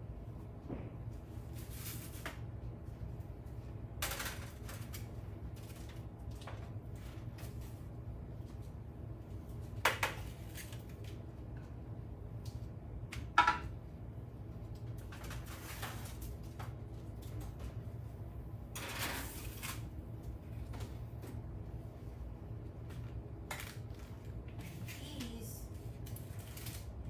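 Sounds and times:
steady low hum: 0.0 - 27.0
baking trays and utensils clattering: 4.0 - 7.8, 13.1 - 13.8, 14.8 - 17.8, 18.7 - 21.0.

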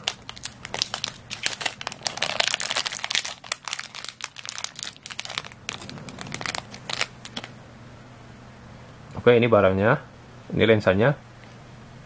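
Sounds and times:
plastic bag crinkling: 0.0 - 7.6.

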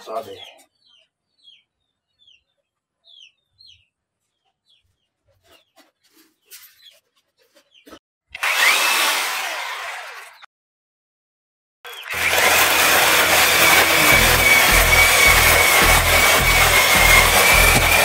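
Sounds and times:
electric chainsaw whirring: 8.3 - 10.5, 11.9 - 18.0.

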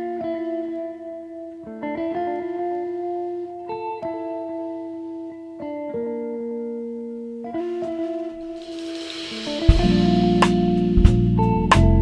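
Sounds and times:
slow held music chords: 7.0 - 12.0.

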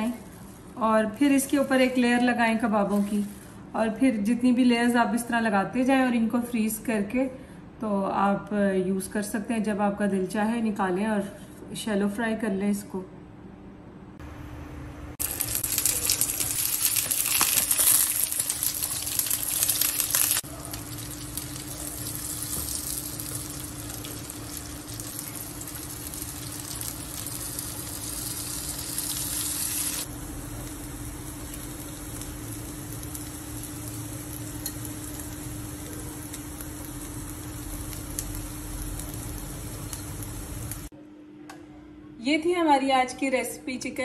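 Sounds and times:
kebabs sizzling in oil: 15.2 - 40.9.

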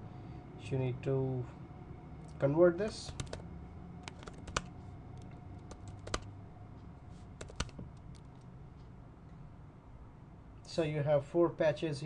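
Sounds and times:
keyboard key clicks: 7.4 - 8.3.

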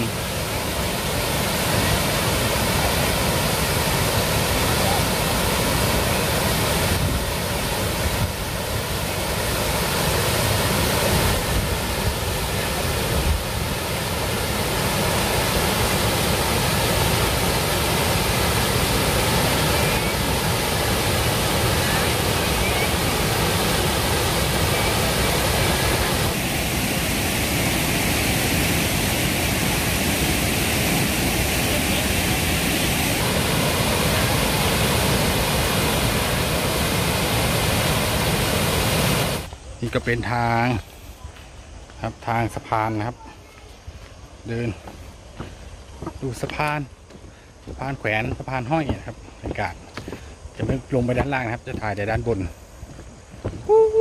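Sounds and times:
waterfall rushing: 0.0 - 41.0.

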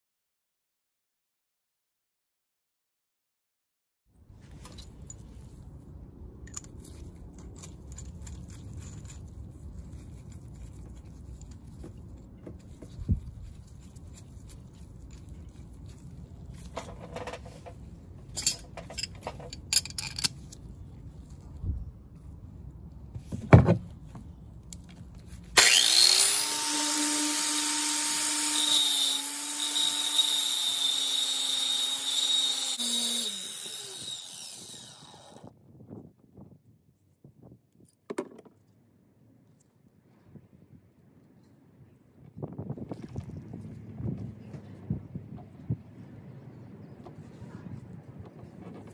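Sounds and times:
metal clinks and knocks: 6.5 - 9.4, 16.7 - 20.6
angle grinder grinding metal: 25.6 - 35.5.

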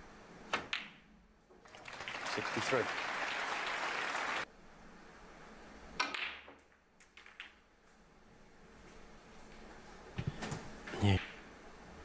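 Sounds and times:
audience applause: 1.6 - 4.5.

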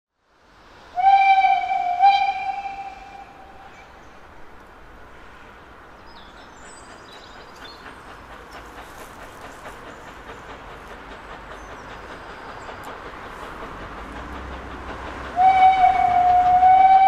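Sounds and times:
steam locomotive whistle: 0.9 - 3.8, 15.4 - 17.0
birds chirping faintly: 5.4 - 14.0.

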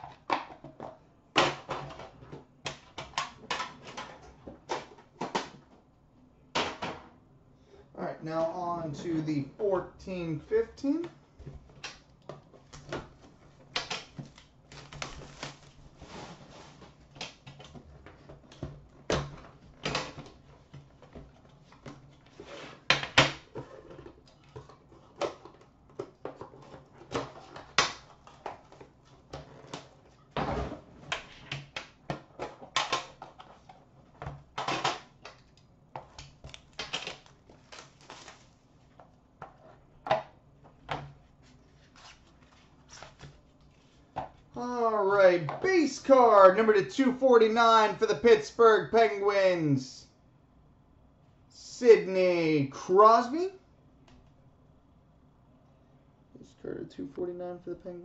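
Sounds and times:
packaging rustling: 14.1 - 17.1, 36.4 - 38.7.

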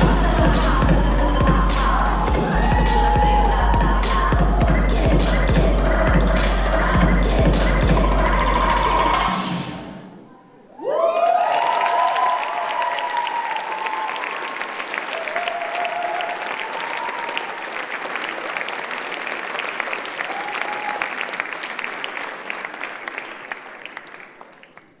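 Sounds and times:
cheering shouts: 2.3 - 4.6, 10.7 - 17.9, 20.2 - 21.4
audience clapping: 11.0 - 25.0.

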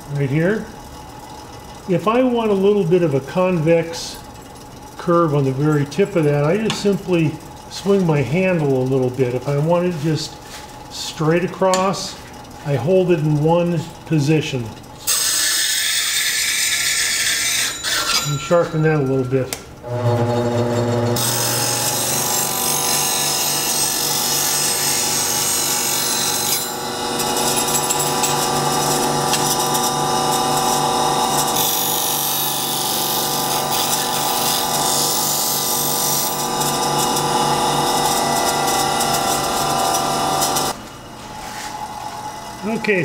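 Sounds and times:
chisel grinding on wheel: 15.1 - 18.4, 19.9 - 40.8
bench grinder motor hum: 19.8 - 40.8.

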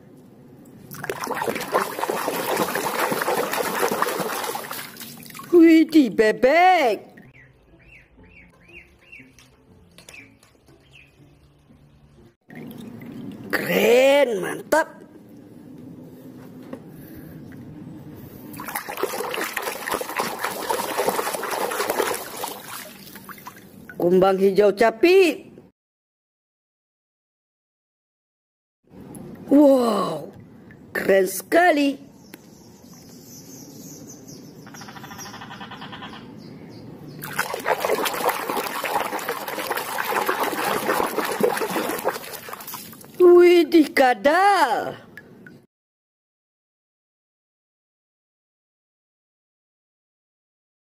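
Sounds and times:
water splashing and sloshing: 0.6 - 5.7, 12.5 - 13.9, 18.4 - 24.0, 37.2 - 43.4.

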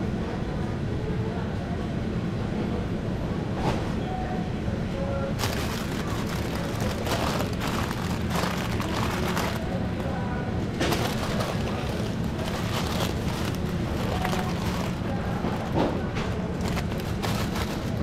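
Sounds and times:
faint background voices: 0.0 - 18.0
steady low hum: 4.4 - 18.0
crackling rustling noise: 5.4 - 9.8, 10.8 - 18.0.

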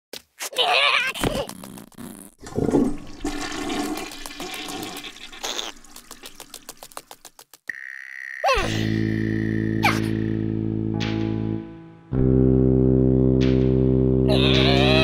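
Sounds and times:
music: 8.6 - 15.0.

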